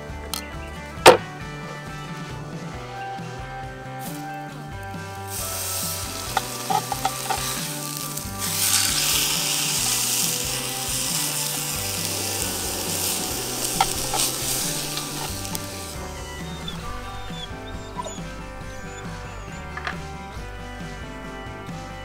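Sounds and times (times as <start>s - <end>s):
food sizzling in a frying pan: 5.3s - 16.0s
utensil clicking against pan: 5.9s - 15.8s.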